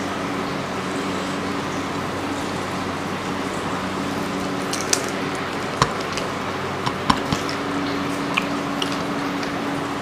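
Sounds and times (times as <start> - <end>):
chewing and finger smacks: 4.7 - 9.8.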